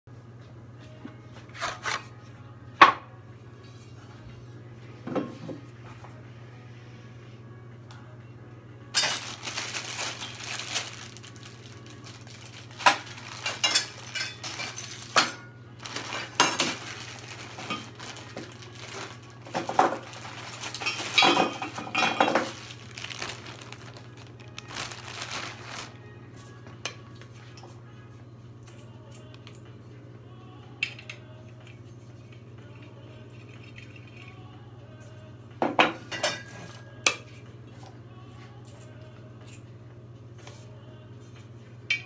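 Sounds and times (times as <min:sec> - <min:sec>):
small hard objects clinking: 0:09.0 - 0:26.0.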